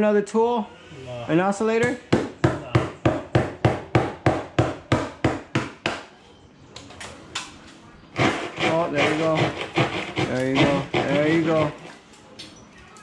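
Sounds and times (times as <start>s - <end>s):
hand saw cutting drywall: 8.2s - 11.9s.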